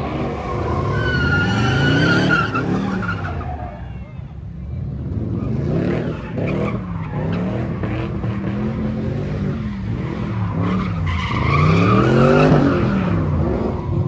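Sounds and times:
car engine revving: 0:04.9 - 0:14.0.

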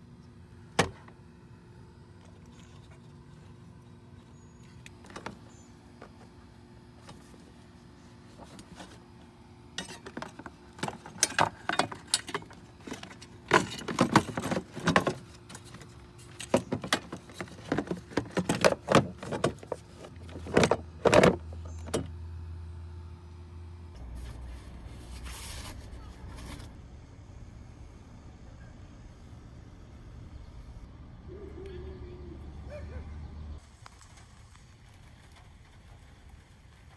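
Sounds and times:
clicks and knocks of car parts: 0:00.7 - 0:01.2, 0:09.8 - 0:22.1.

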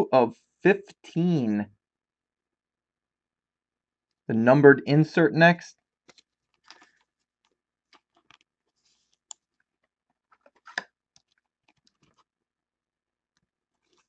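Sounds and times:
trading card ticks and rustles: 0:06.0 - 0:12.3.

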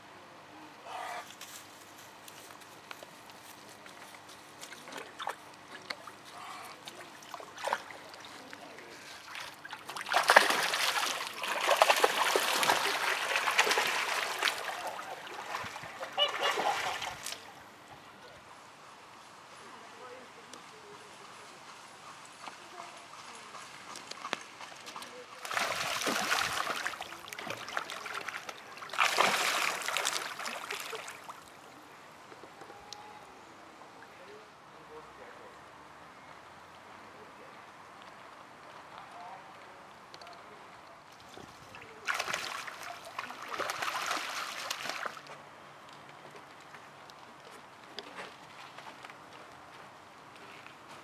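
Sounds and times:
goose splashing in water: 0:04.6 - 0:17.5, 0:25.4 - 0:31.4, 0:41.2 - 0:45.3.

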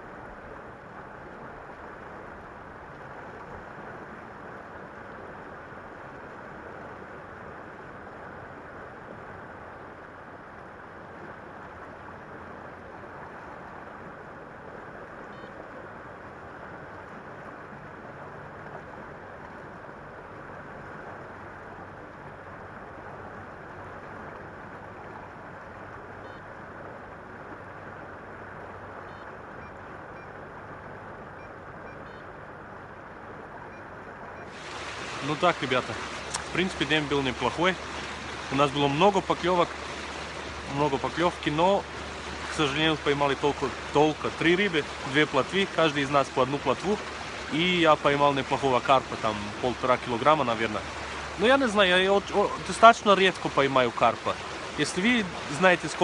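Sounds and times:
motorboat engine humming: 0:00.0 - 0:56.0
river flowing: 0:00.0 - 0:56.0
wind: 0:00.0 - 0:56.0.

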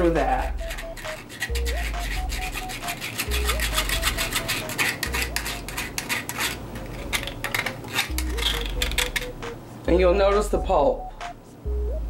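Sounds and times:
light tune with low bass: 0:00.0 - 0:06.0, 0:06.6 - 0:12.0
metal spoon scraping wire-mesh strainer: 0:00.2 - 0:09.3.

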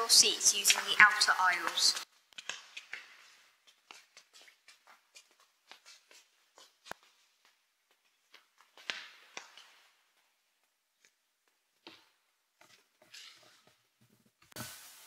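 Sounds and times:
scuff on floor: 0:02.4 - 0:10.4
child footsteps on wooden floor: 0:02.4 - 0:13.8.

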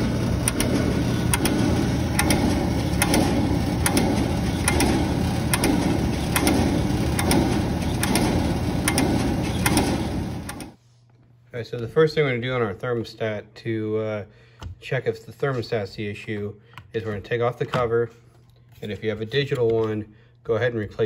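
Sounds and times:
oil burner motor hum: 0:00.0 - 0:10.8.

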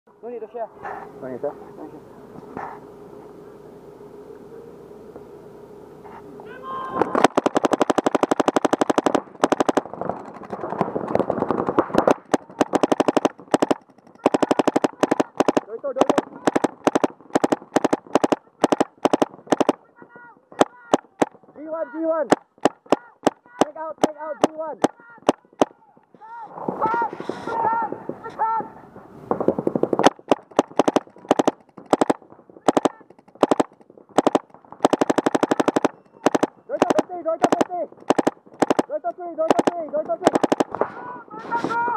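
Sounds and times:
paintball markers firing: 0:06.9 - 0:26.2, 0:29.3 - 0:41.0.

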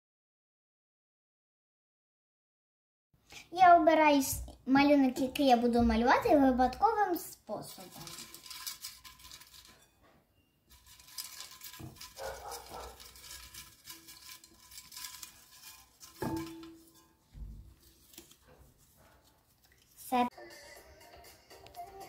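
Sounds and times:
paper slips rustling: 0:07.5 - 0:10.0, 0:10.7 - 0:20.3.

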